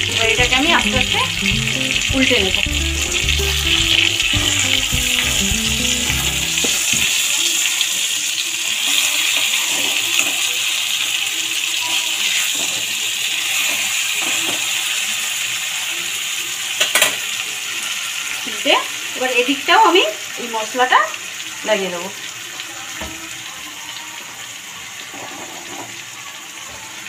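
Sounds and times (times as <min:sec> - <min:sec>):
background music: 0:00.0 - 0:07.4
fish sizzling in oil: 0:00.0 - 0:27.0.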